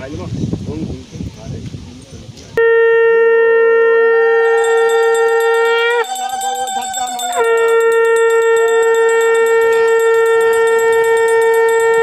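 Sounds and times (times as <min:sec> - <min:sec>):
conch shell blown: 0:02.6 - 0:12.0
faint wavering tone: 0:03.9 - 0:12.0.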